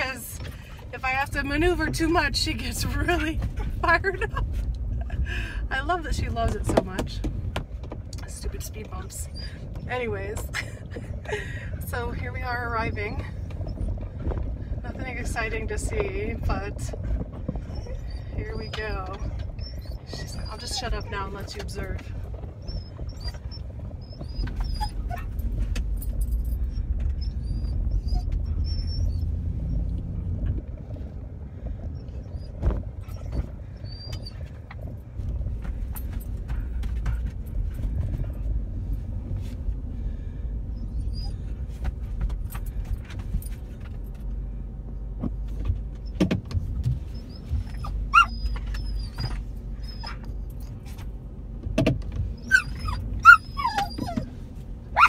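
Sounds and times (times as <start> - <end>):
car engine and road rumble: 0.0 - 55.0
dog whining: 9.2 - 9.9, 17.6 - 21.7, 22.4 - 25.7, 26.6 - 29.9, 32.0 - 34.9, 40.8 - 41.6, 47.1 - 50.8, 52.4 - 55.0.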